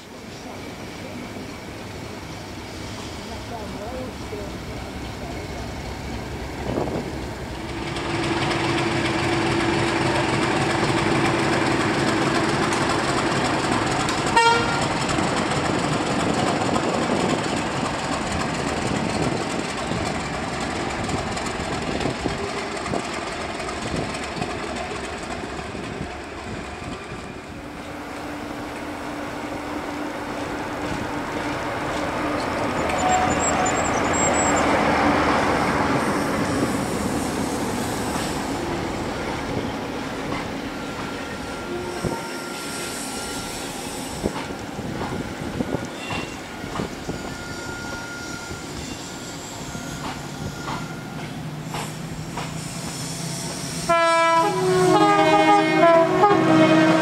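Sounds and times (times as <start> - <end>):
approaching train running noise: 0.0 - 57.0
diesel locomotive engine running: 0.0 - 57.0
locomotive horn toot: 14.3 - 14.9, 32.5 - 34.7, 41.0 - 43.7, 45.9 - 46.5, 53.8 - 57.0.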